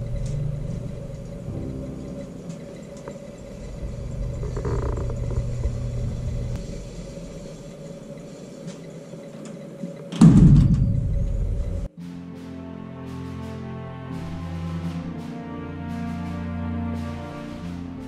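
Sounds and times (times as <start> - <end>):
low vehicle rumble: 0.0 - 7.8
steady hum: 0.0 - 11.9.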